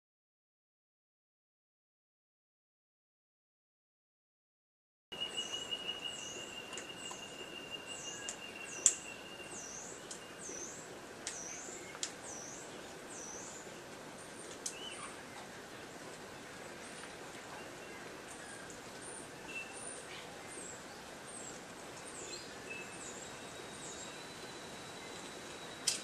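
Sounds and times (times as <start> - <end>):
bird singing high swooping notes: 5.1 - 13.6.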